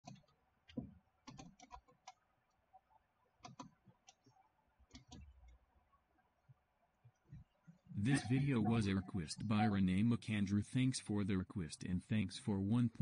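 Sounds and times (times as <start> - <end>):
computer mouse and keyboard clicking: 0.0 - 2.2, 3.4 - 5.6.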